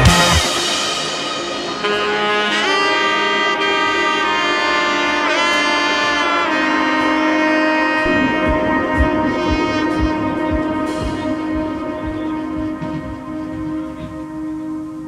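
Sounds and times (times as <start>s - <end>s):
melody of long sliding notes: 0.0s - 15.0s
low drum beat: 8.0s - 14.5s.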